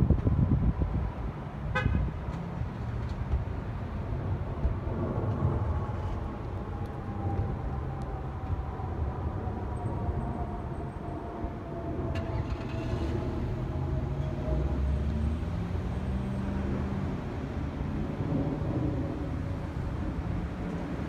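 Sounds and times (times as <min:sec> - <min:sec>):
wind buffeting microphone: 0:00.0 - 0:12.2
car horn toot: 0:01.7 - 0:02.1
jet airliner passing overhead: 0:04.0 - 0:15.7.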